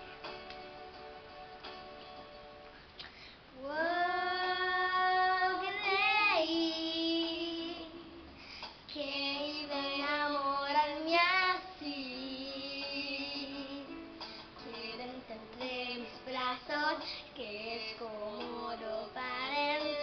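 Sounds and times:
backing music: 0.0 - 3.0, 4.0 - 20.0
girl singing: 3.5 - 8.3, 8.9 - 14.0, 14.6 - 20.0.

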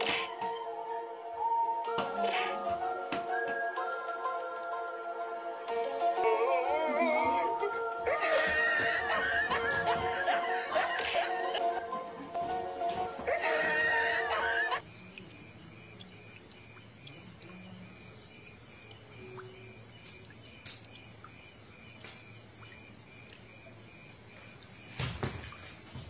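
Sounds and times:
people laughing: 6.2 - 12.2, 13.2 - 14.8
crickets chirring: 13.1 - 26.0.

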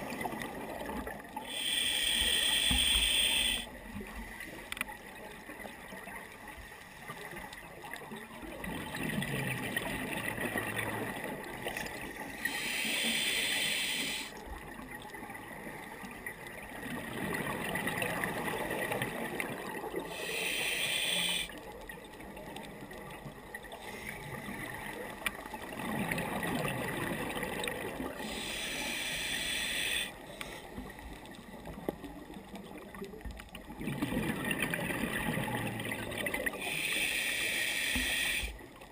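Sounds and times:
regulator hissing inhalations: 1.5 - 3.7, 12.4 - 14.4, 20.1 - 21.5, 28.2 - 30.7, 36.6 - 38.6
exhaled bubbles gurgling: 7.3 - 38.9.

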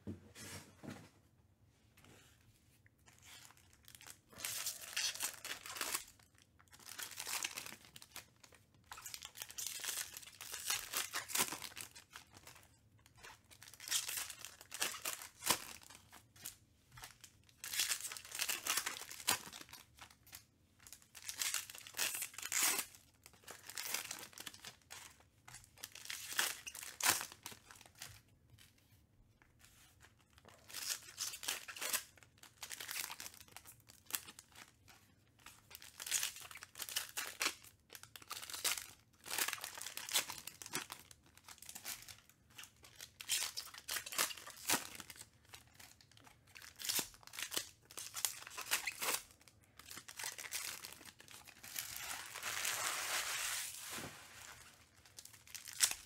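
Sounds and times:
foil wrappers tearing and crinkling: 3.9 - 6.2, 46.6 - 56.0.

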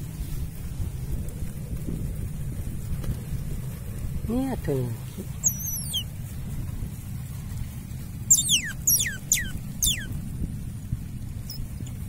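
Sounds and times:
low rumble: 0.0 - 12.0
otter pup squeaking: 5.3 - 6.1, 8.3 - 10.2.

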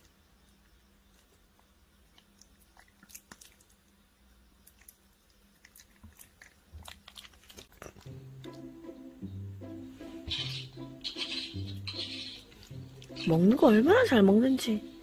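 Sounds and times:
monkey chewing fruit: 4.7 - 8.7.

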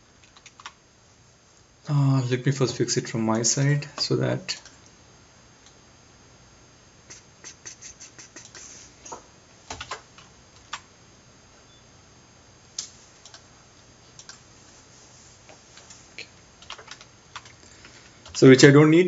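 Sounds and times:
computer keyboard keystrokes: 0.2 - 0.8, 9.7 - 10.0, 12.8 - 13.4, 14.2 - 14.4, 16.6 - 17.6.

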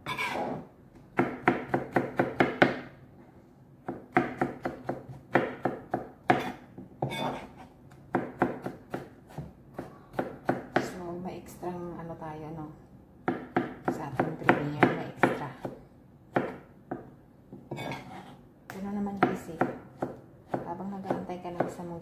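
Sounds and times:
knife chopping on cutting board: 1.2 - 2.9, 3.8 - 11.0, 13.3 - 18.4, 19.2 - 21.8.

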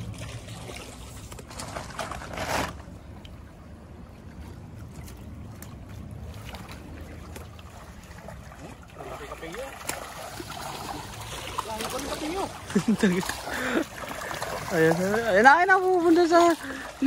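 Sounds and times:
stream running over stones: 0.0 - 17.0
boots splashing through water: 4.4 - 17.0
loud splashing: 6.1 - 17.0.

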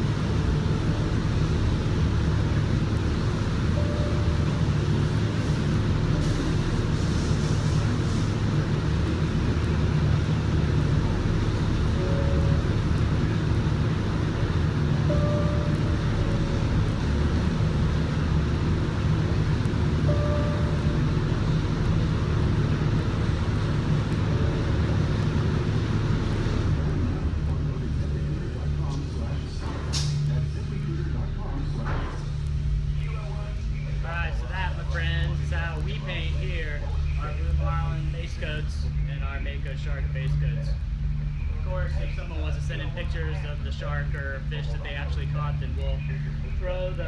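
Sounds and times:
ventilation drone: 0.0 - 47.0
air hiss: 5.3 - 8.6.

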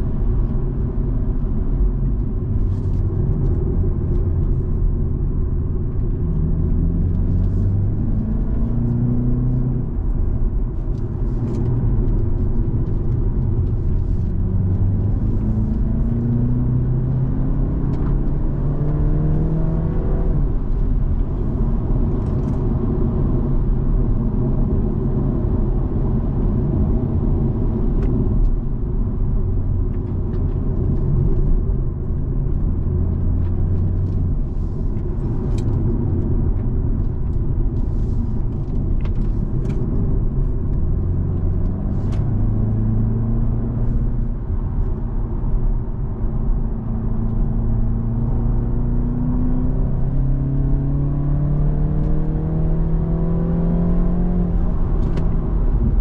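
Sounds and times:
road and tyre noise: 0.0 - 56.0
car engine revving: 38.0 - 56.0.

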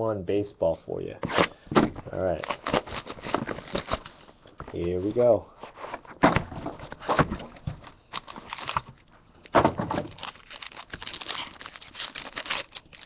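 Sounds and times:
packaging crinkling and tearing: 2.2 - 4.9, 7.8 - 9.1, 9.9 - 13.0.

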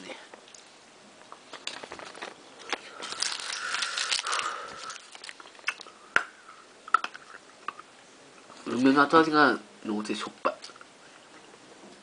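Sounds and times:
mint tablets crunched and chewed: 1.6 - 5.9.

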